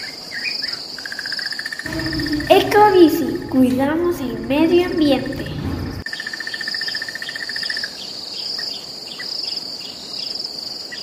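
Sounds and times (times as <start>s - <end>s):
crickets chirping: 0.7s - 8.6s
lower trill: 1.9s - 6.0s.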